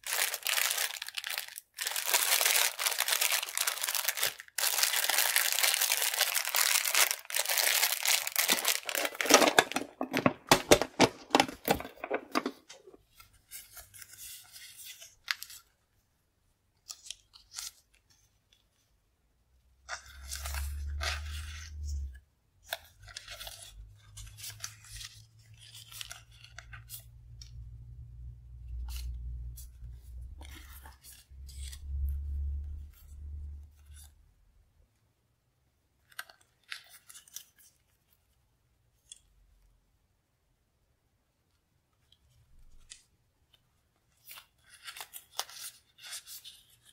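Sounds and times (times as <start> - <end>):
paper stickers rustling: 0.0 - 15.7
plastic sleeves crinkling: 0.0 - 15.8, 42.0 - 46.9.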